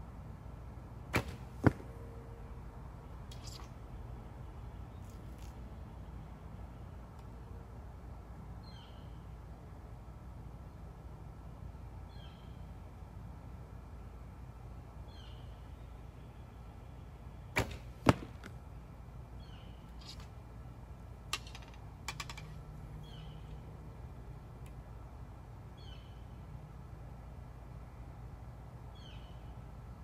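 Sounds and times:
arrow hitting target: 1.1s - 1.9s, 17.6s - 18.5s
bird chirping: 3.3s - 3.7s, 19.4s - 20.3s, 22.2s - 23.8s.

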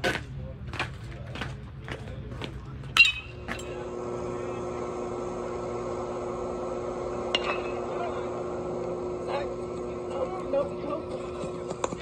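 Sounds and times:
steady hum: 0.0s - 12.0s
metal bat striking ball: 3.0s - 3.6s, 7.3s - 7.8s.

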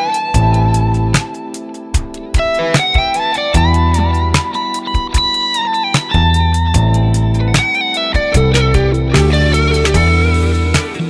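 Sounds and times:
electric guitar blues lead: 0.0s - 11.0s
steady drum beat: 0.0s - 11.0s
bass line: 0.4s - 1.3s, 3.4s - 4.5s, 6.1s - 11.0s.

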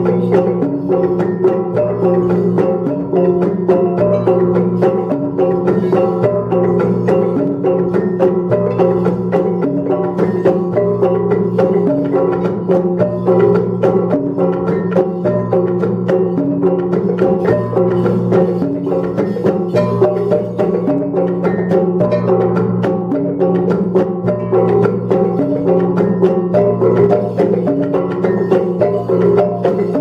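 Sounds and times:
fast percussive beat: 0.0s - 30.0s.

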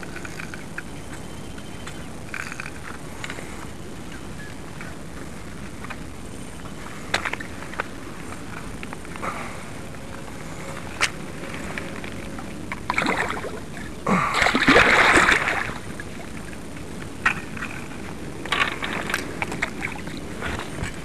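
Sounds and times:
water splashing: 12.7s - 16.6s, 17.3s - 21.0s.

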